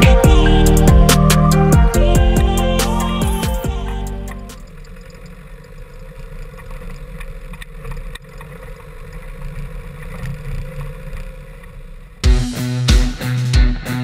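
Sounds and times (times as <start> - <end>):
diesel engine rumbling: 0.0 - 14.0.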